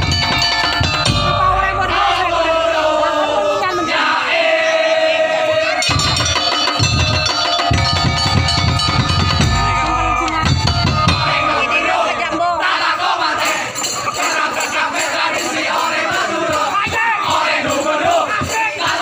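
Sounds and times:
large drums beating: 0.0s - 4.1s, 5.7s - 13.6s
wavering melody line: 0.0s - 4.8s, 5.8s - 14.5s
crowd voices: 0.0s - 19.0s.

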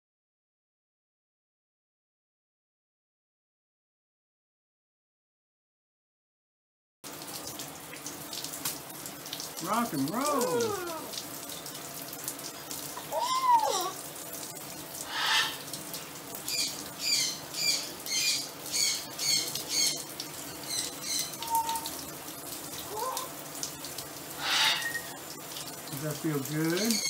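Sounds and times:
shower water spraying: 7.1s - 27.0s
macaw squawking: 13.1s - 14.0s, 15.1s - 15.6s, 16.5s - 20.0s, 20.7s - 21.9s, 24.4s - 25.1s
quick high bird calls: 15.1s - 15.6s.

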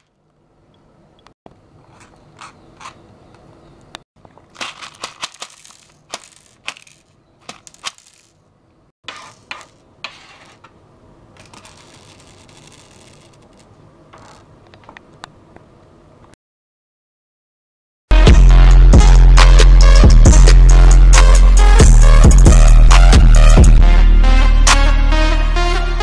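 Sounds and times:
candies clicking onto desk: 4.4s - 8.4s.

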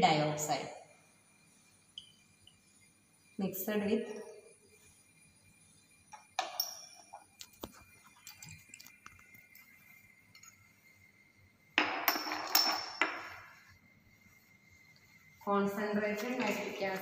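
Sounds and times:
glass test tubes clinking: 6.2s - 7.4s, 8.1s - 9.7s, 11.8s - 13.6s.

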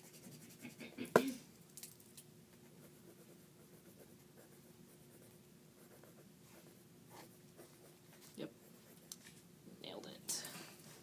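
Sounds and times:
pens scratching on paper: 0.0s - 0.8s
faint room hum: 0.0s - 11.0s.

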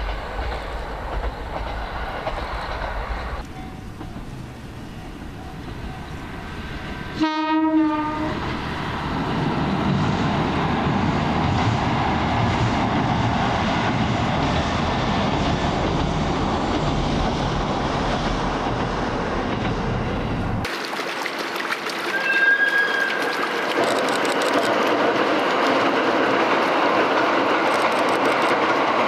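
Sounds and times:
train wheels rushing on rail: 0.0s - 20.8s, 21.4s - 29.0s
train horn blast: 7.1s - 8.6s.

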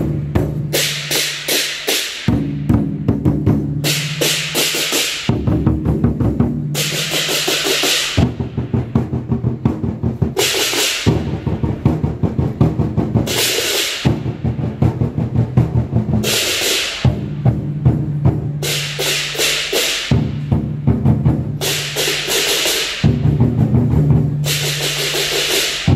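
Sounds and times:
large drums beaten fast: 0.0s - 25.9s
bright cymbal crash: 3.8s - 5.3s, 6.8s - 8.5s, 16.2s - 17.3s, 18.6s - 20.4s, 21.6s - 23.2s, 24.4s - 25.9s.

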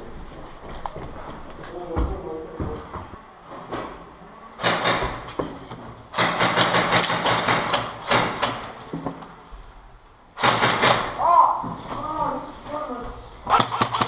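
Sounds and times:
airsoft gun bursts: 10.4s - 11.1s, 13.5s - 14.0s.

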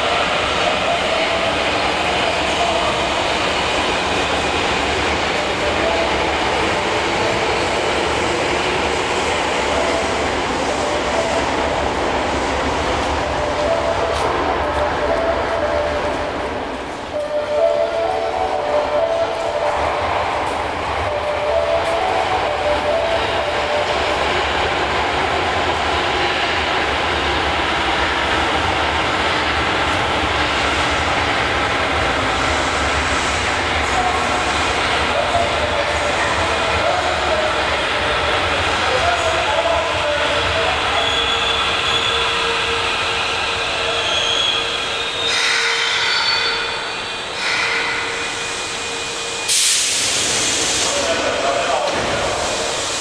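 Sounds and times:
subway train wheels and motors: 0.0s - 53.0s
air hissing: 47.3s - 51.4s, 52.2s - 53.0s.

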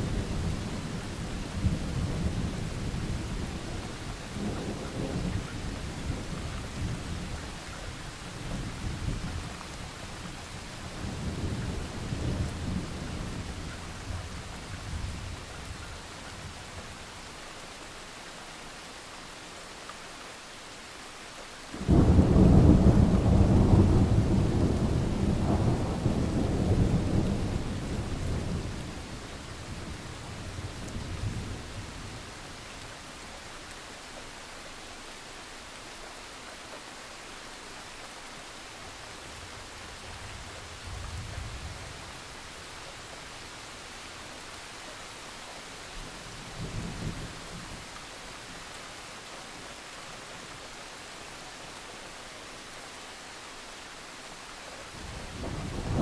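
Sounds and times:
rain hiss: 0.0s - 56.0s
rolling thunder: 21.8s - 31.7s, 55.0s - 56.0s
loud thunderclap: 55.3s - 56.0s.

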